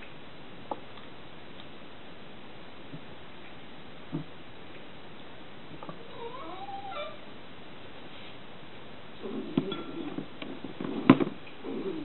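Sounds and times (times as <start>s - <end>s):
rustling: 7.8s - 8.5s.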